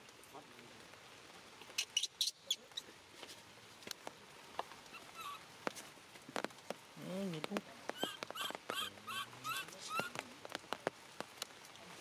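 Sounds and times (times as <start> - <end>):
baby monkey squeaking: 1.8 - 2.8, 4.9 - 5.4, 7.9 - 10.2.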